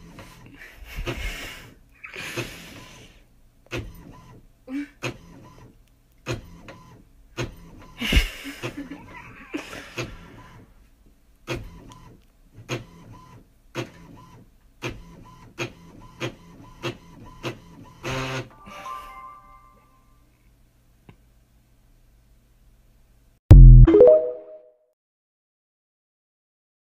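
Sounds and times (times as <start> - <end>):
printer whirring as paper feeds: 5.0 - 8.0, 11.5 - 18.5.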